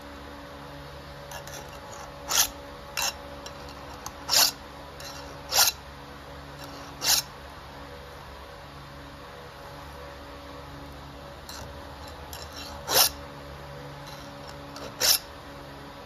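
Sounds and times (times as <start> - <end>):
file rasping on chainsaw chain: 1.3 - 5.8, 6.6 - 7.3, 11.5 - 13.2, 14.0 - 15.3.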